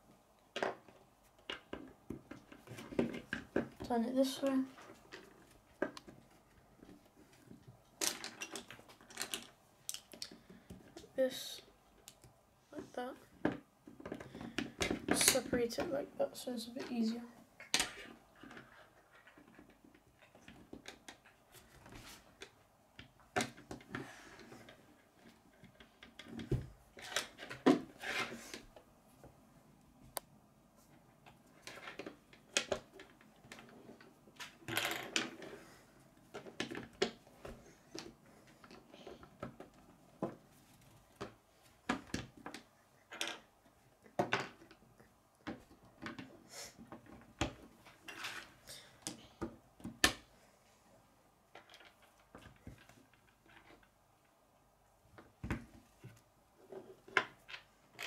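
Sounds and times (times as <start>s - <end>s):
rattle of plastic pieces: 7.9s - 10.4s
plastic pieces clicking together: 8.0s - 10.4s.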